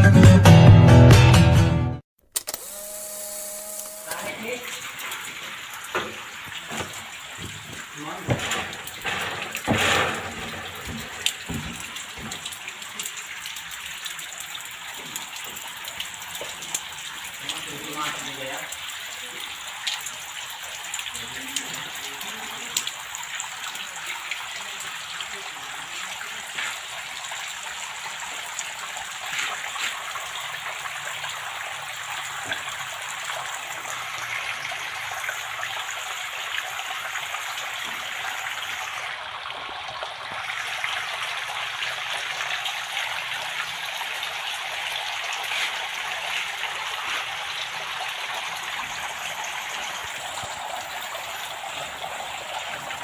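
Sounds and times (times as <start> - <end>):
water trickling down cooling pad: 2.6 - 53.0.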